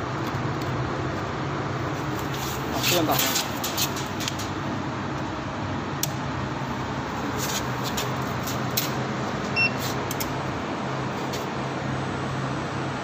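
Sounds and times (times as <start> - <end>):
steady low hum: 0.0 - 13.0
circuit breakers clicking: 2.2 - 4.6
short electronic beep: 9.6 - 9.8.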